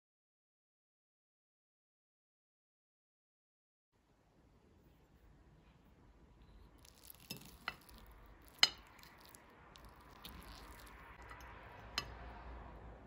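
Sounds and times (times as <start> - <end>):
fork clinking on plate: 6.8 - 12.2
soft fork scraping: 6.8 - 12.3.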